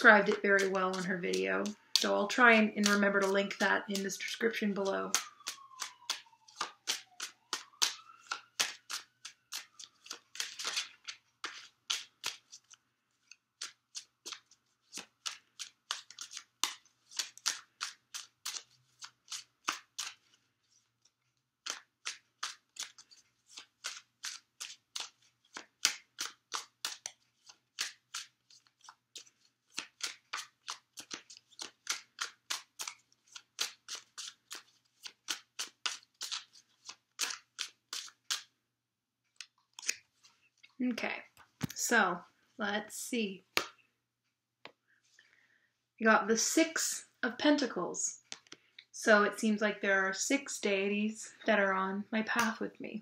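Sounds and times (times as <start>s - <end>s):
cards being shuffled: 0.0s - 38.5s, 39.3s - 42.0s.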